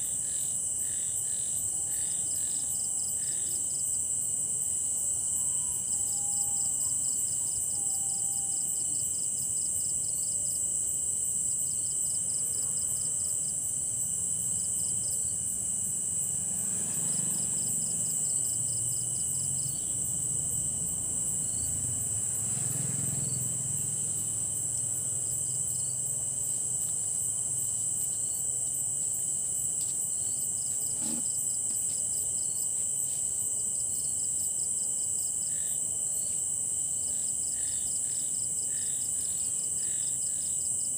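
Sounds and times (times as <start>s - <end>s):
crickets trilling: 0.0s - 40.9s.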